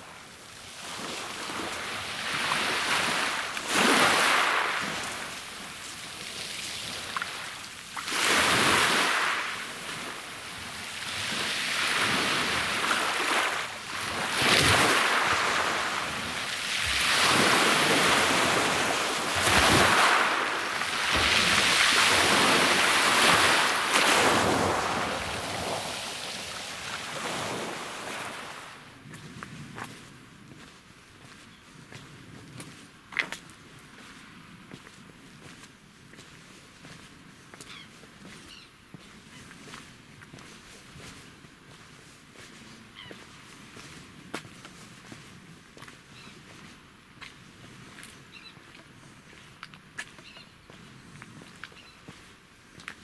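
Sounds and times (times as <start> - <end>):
waves on pebble beach: 0.0 - 29.0.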